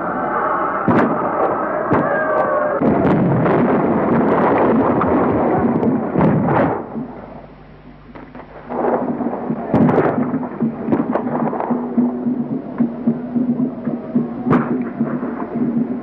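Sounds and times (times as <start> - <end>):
sharp cracks of cannon: 0.8 - 2.2, 2.8 - 7.3, 8.1 - 12.2
cannon fire rumble: 0.8 - 16.0.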